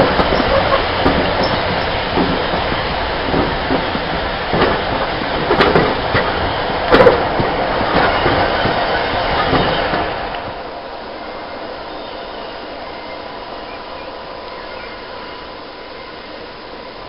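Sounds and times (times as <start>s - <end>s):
wheels clicking over rail joints: 0.0s - 11.0s
diesel train passing: 0.0s - 17.0s.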